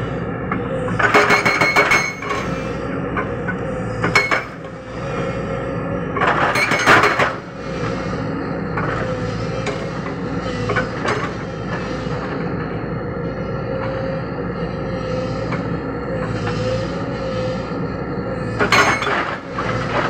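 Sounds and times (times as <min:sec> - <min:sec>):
excavator engine running: 0:00.0 - 0:20.0
hydraulic breaker hammering rock: 0:00.9 - 0:02.5, 0:04.0 - 0:04.7, 0:06.2 - 0:07.5, 0:18.6 - 0:20.0.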